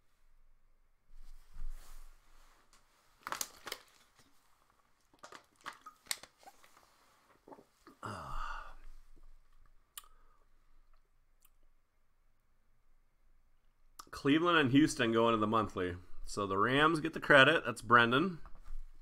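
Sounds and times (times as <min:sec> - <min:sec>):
crinkling rustle: 0:01.2 - 0:08.0.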